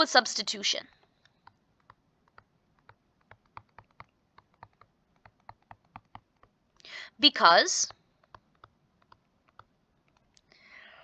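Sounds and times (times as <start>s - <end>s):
stylus tapping on touchscreen: 0.9s - 6.6s, 7.9s - 10.4s.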